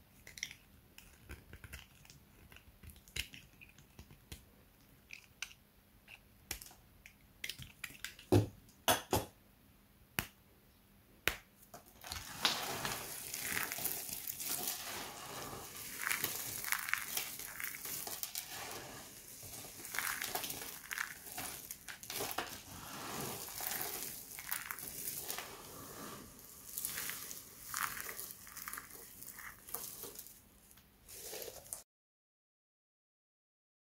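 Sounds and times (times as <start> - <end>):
crunching soap shavings: 0.2 - 4.4, 11.8 - 30.4, 31.1 - 31.8.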